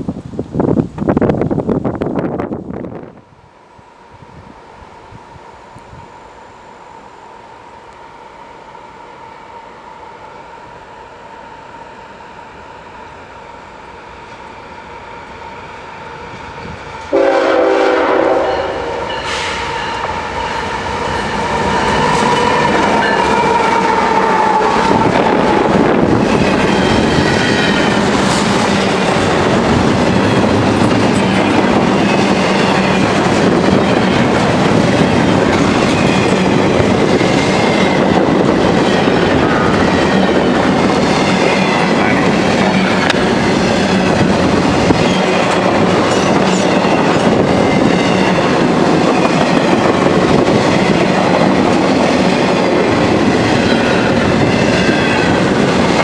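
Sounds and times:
train horn: 15.3s - 26.1s.

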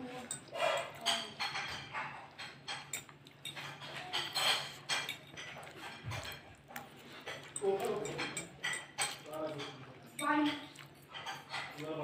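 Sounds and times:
fork clinking on glass plate: 0.2s - 6.5s.

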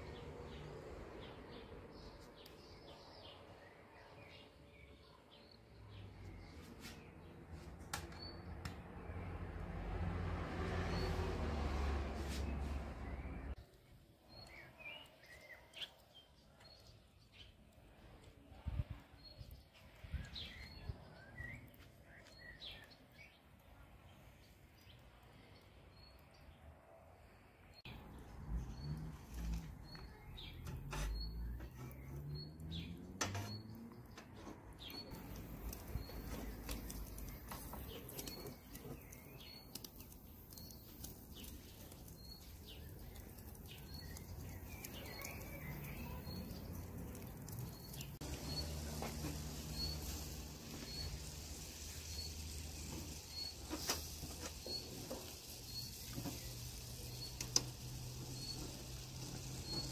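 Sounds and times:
bird chirping: 12.3s - 17.7s, 18.6s - 59.9s
meat sizzling over charcoal: 34.8s - 59.9s.

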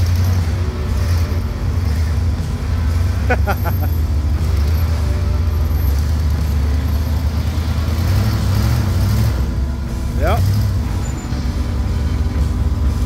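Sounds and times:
engine running at low speed: 0.0s - 13.0s.

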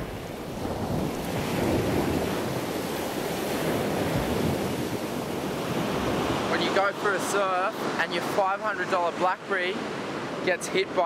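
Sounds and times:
wind buffeting microphone: 0.0s - 6.9s
ocean surf washing in: 0.0s - 11.0s.

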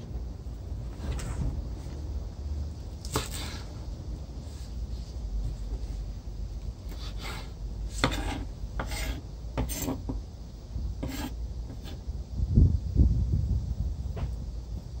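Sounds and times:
knife slicing herbs on board: 3.0s - 3.7s, 6.9s - 10.1s, 11.0s - 12.0s.

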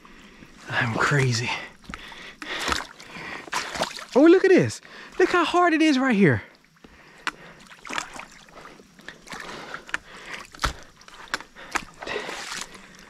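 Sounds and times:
footsteps squelching through mud: 0.7s - 4.2s, 6.9s - 13.0s.

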